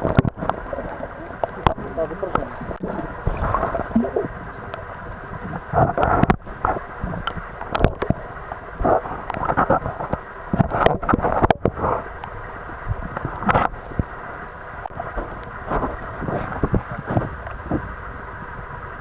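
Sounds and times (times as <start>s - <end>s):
underwater stream gurgling: 0.0s - 19.0s.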